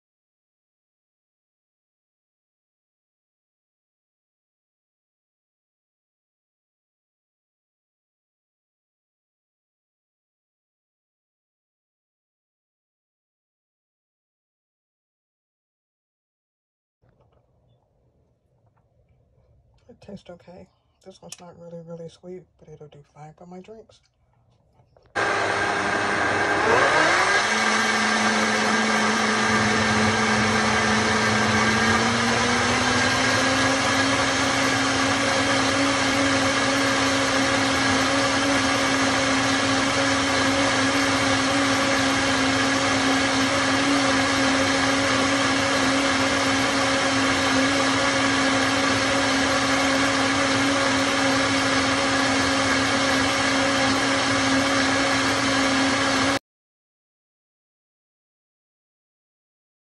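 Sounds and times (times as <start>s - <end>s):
blender motor running: 25.2s - 56.4s.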